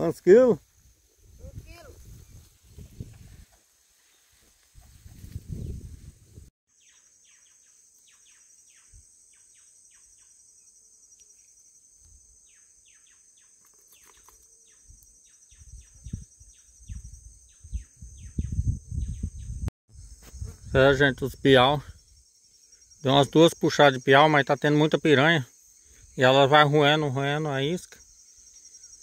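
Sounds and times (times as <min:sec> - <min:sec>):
high insect buzz: 0:06.8 - 0:26.6, 0:27.9 - 0:29.0.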